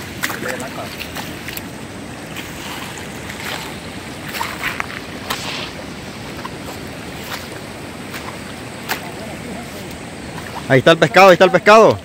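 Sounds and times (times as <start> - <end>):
water splashing and sloshing: 0.0 - 12.0.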